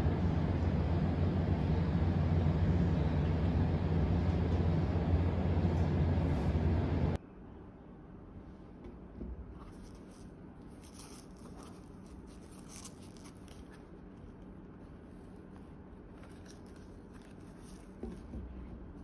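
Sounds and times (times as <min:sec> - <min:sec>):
low room noise: 0:00.0 - 0:19.0
fabric shoes rustling and scraping: 0:09.4 - 0:19.0.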